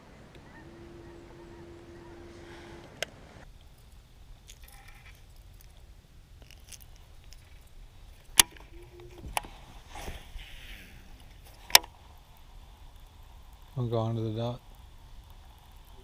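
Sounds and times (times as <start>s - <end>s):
trolling motor hum: 0.2s - 5.5s.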